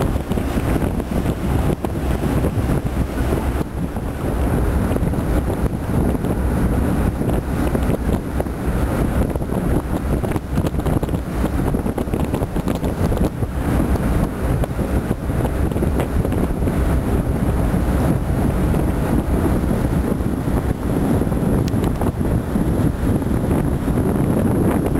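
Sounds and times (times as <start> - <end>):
boat running: 0.0 - 24.9
water beneath boat: 0.0 - 24.9
wind buffeting microphone: 0.0 - 24.9.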